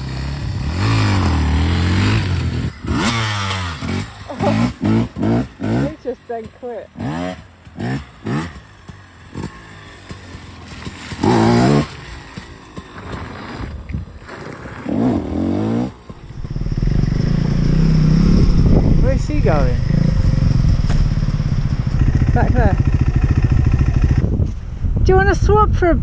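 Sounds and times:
dirt bike engines revving: 0.0s - 24.4s
bike engine running steadily: 0.0s - 25.6s.

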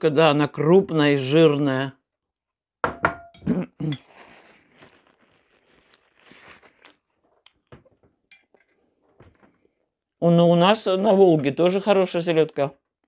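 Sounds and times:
fabric rubbing against microphone: 4.1s - 7.0s.

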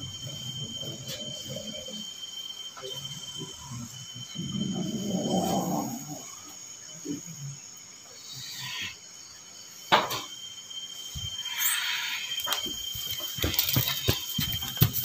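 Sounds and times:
crickets chirping: 0.0s - 15.0s.

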